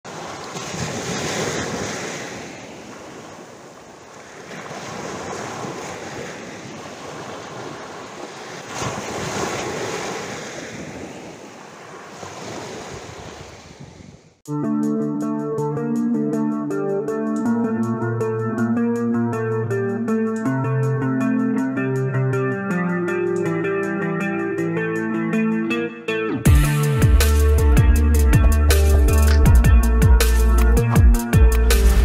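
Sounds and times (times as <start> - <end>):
surf washing up a beach: 0.1 - 14.3
guitar music: 14.5 - 32.0.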